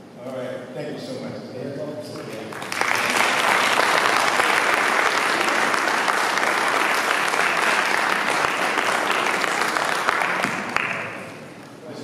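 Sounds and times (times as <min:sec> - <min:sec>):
audience applauding: 0:02.2 - 0:11.6.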